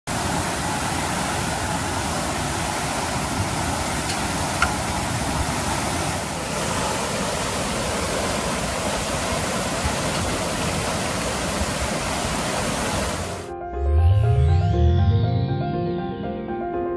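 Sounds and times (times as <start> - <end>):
water gushing onto pavement: 0.1 - 13.4.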